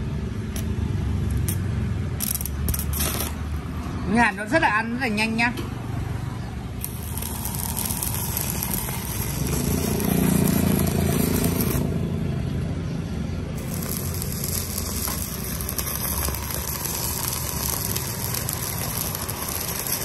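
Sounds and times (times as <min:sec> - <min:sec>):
stick welding arc hissing: 0:00.5 - 0:03.8, 0:06.8 - 0:11.9, 0:13.6 - 0:20.0.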